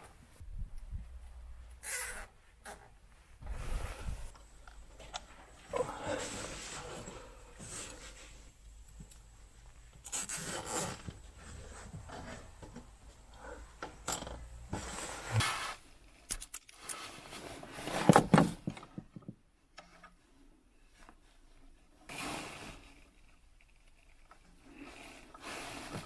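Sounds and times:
crackling scrape: 10.0 - 12.6, 22.1 - 26.0.

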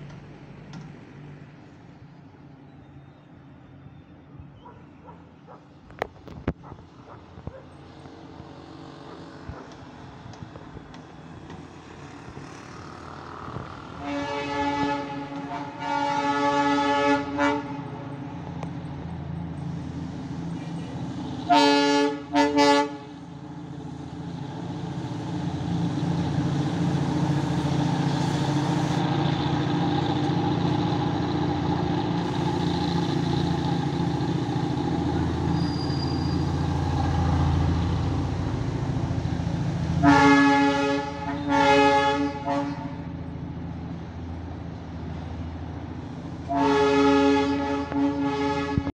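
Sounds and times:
locomotive horn blasts: 14.0 - 18.0, 21.4 - 23.2, 40.0 - 43.1, 46.4 - 48.9
diesel engine rumble: 17.2 - 46.6.

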